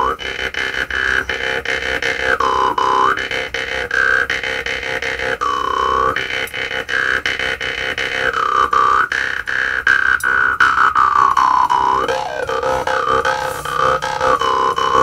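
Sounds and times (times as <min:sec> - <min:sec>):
jaw harp plucked: 0:08.3 - 0:15.0.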